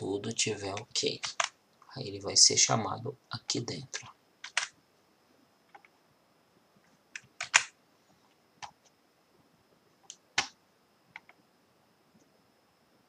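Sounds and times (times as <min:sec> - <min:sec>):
keyboard and mouse clicks: 0:01.2 - 0:01.6, 0:04.0 - 0:04.8, 0:07.2 - 0:07.7, 0:10.0 - 0:11.4.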